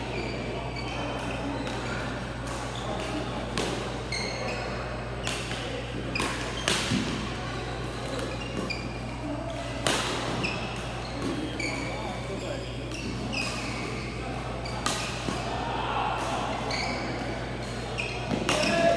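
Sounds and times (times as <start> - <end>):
shoes squeaking on court: 0.0 - 15.5, 16.4 - 18.9
distant voices: 0.0 - 18.9
racket hitting shuttlecock: 5.2 - 7.3, 9.7 - 11.4, 14.6 - 15.5, 18.0 - 18.9.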